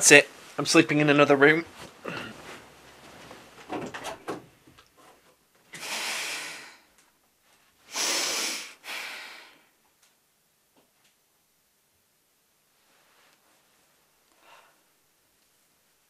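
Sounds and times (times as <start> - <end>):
woman sighing heavily: 2.0 - 2.4.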